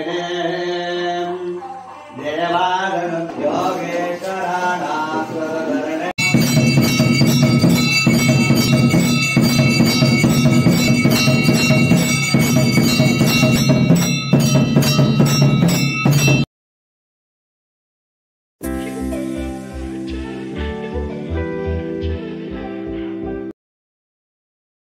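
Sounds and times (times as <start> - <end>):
mantra chanting: 0.0 - 6.2
percussion beat: 6.2 - 16.5
ringing bells: 6.2 - 16.5
devotional music: 18.6 - 23.5.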